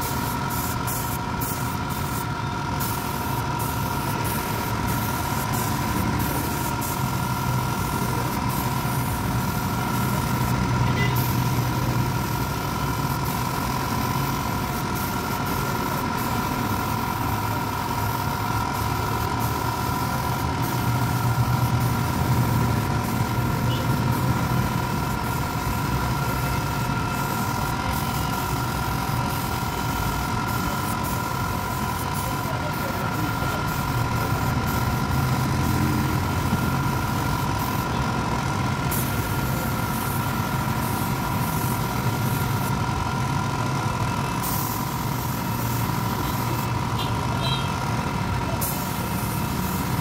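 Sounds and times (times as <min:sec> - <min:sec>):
air compressor running: 0:00.0 - 0:50.0
paint spray gun hissing: 0:00.0 - 0:50.0.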